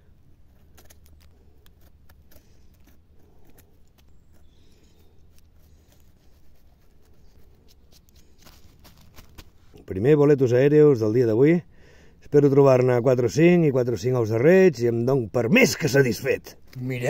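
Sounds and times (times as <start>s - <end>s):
knife blade scraping soil: 0.4s - 9.8s.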